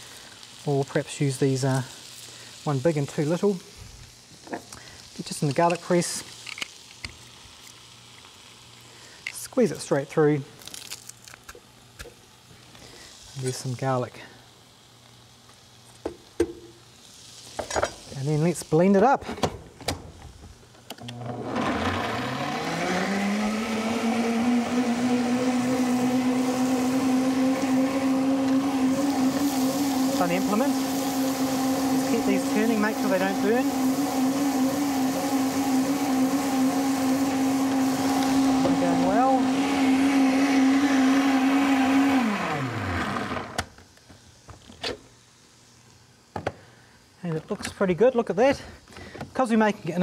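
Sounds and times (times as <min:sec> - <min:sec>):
blender motor running: 0:21.0 - 0:43.7.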